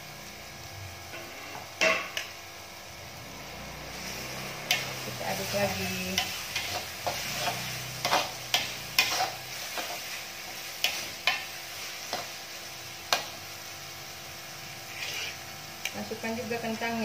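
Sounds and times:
soft sizzle of frying: 0.0s - 17.0s
metal spatula scraping a wok: 3.9s - 12.4s, 14.8s - 15.5s.

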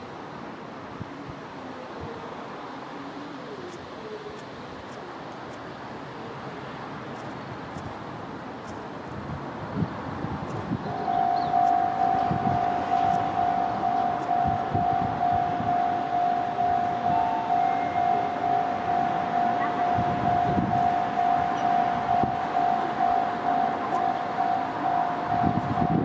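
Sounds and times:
level crossing warning bell: 10.9s - 26.0s.

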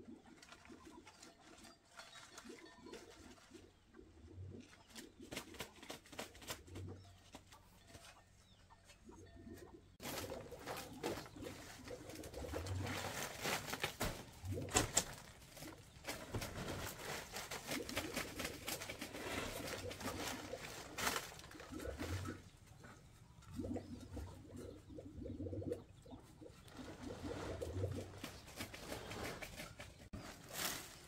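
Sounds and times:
birds cooing: 8.5s - 30.7s
rustling: 10.0s - 23.0s, 26.6s - 31.0s.

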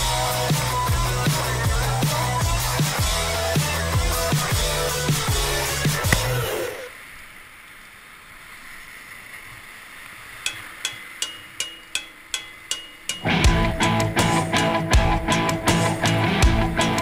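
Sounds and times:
music: 0.0s - 6.9s, 11.9s - 17.0s.

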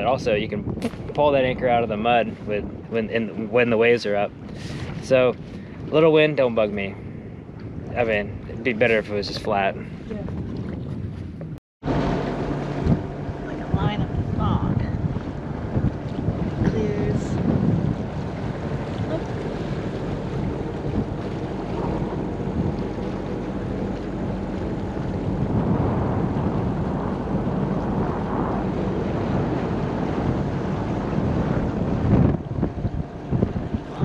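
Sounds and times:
boat engine droning: 0.0s - 10.6s, 11.4s - 34.0s
wind buffeting microphone: 0.0s - 34.0s.

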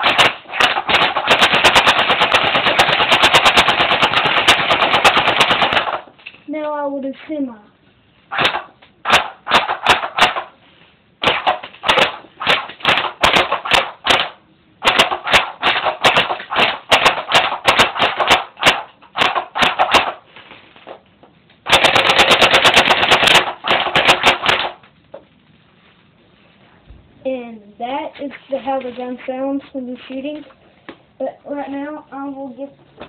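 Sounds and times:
airsoft gun full-auto burst: 0.0s - 6.1s, 8.3s - 10.6s, 11.2s - 20.2s, 21.6s - 24.8s
airsoft gun single shots: 0.0s - 6.1s, 8.3s - 10.6s, 11.2s - 20.2s, 21.6s - 24.8s.

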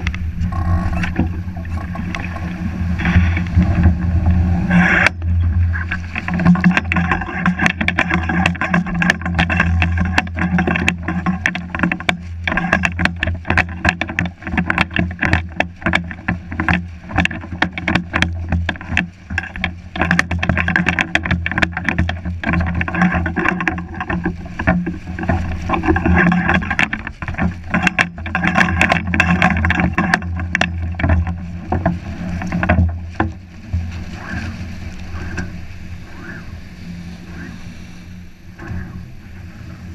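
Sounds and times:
sail flapping in wind: 0.0s - 39.9s
surf breaking: 0.0s - 39.9s
wind rumble on microphone: 0.0s - 39.9s.

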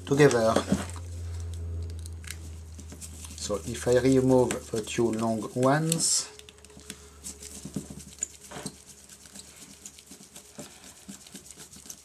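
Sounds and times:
screwdriver clicking and scraping: 4.4s - 7.0s.

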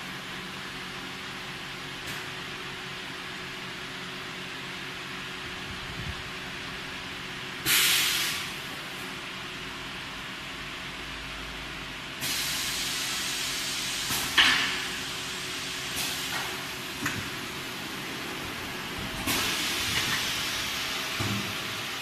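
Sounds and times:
machine hiss: 7.6s - 8.6s, 12.2s - 17.5s, 19.2s - 22.0s.

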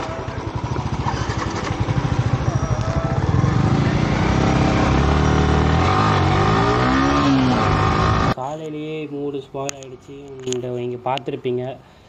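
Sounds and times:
motorcycle engine: 0.0s - 8.4s.

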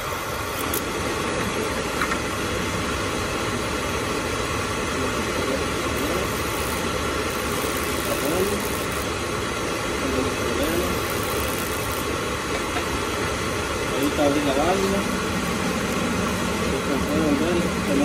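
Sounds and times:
igniter sparking: 0.0s - 2.0s, 5.2s - 17.2s
oil burner motor and fan running: 0.0s - 18.0s.

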